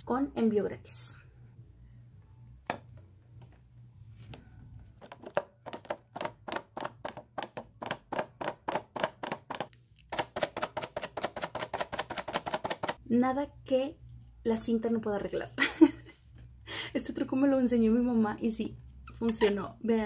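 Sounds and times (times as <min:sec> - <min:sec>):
tape tacky taps: 0:05.0 - 0:13.0.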